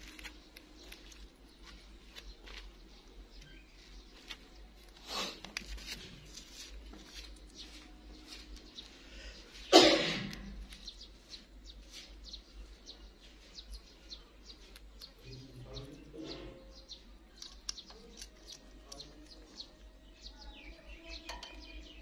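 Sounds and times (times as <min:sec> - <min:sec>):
beak clicking on food: 0:13.6 - 0:16.1, 0:17.3 - 0:19.8, 0:21.1 - 0:22.0.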